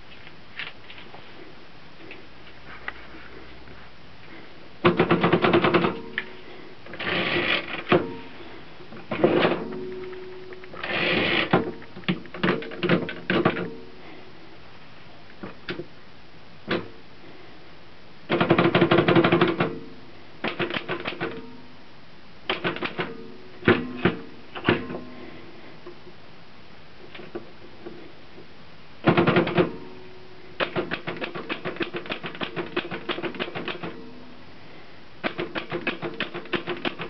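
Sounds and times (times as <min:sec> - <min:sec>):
typewriter carriage return: 0:04.9 - 0:06.2, 0:06.9 - 0:08.2, 0:09.1 - 0:13.7, 0:18.3 - 0:19.8, 0:20.4 - 0:21.4, 0:22.5 - 0:24.9, 0:29.0 - 0:29.8, 0:30.6 - 0:34.0, 0:35.2 - 0:37.0
typewriter keys clacking: 0:30.6 - 0:34.0, 0:35.3 - 0:37.0.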